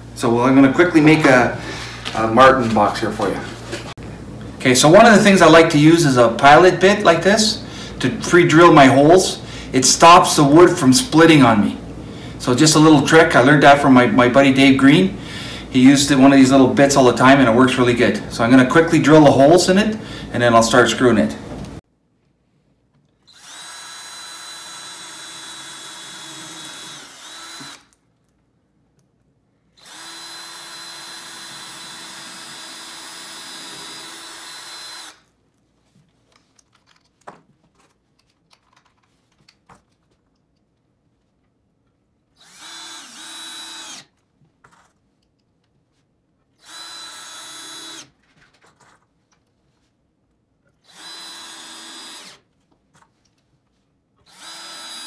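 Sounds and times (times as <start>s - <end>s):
cordless drill drilling into wood: 23.3s - 27.9s, 29.8s - 35.2s, 42.4s - 44.1s, 46.6s - 48.1s, 50.8s - 52.4s, 54.3s - 55.0s.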